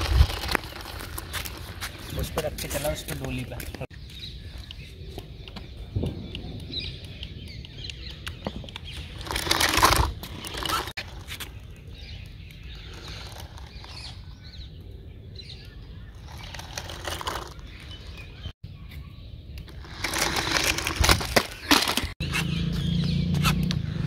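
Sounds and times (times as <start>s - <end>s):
toy car motors and tyres: 0.0s - 3.5s, 8.7s - 14.6s, 15.4s - 18.5s, 19.6s - 22.5s.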